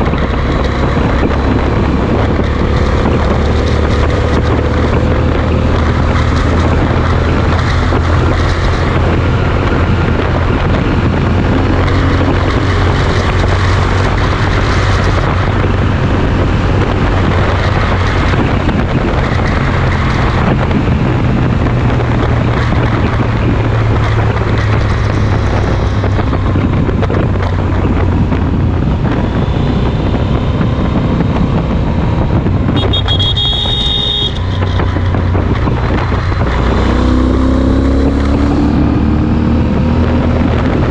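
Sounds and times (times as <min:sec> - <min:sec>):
motorcycle engine at highway speed: 0:00.0 - 0:40.9
wind rushing over microphone: 0:00.0 - 0:40.9
high-pitched tone: 0:32.8 - 0:34.6.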